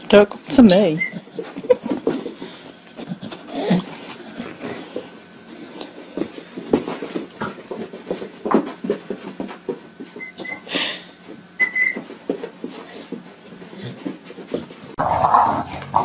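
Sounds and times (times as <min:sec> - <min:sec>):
high squeaks: 0:11.6 - 0:12.0.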